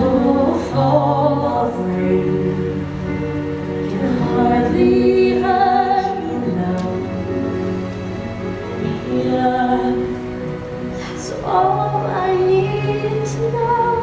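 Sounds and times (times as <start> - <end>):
woman singing a ballad: 0.0 - 2.8, 3.9 - 7.4, 9.0 - 10.3, 11.0 - 14.0
musical accompaniment: 0.0 - 14.0.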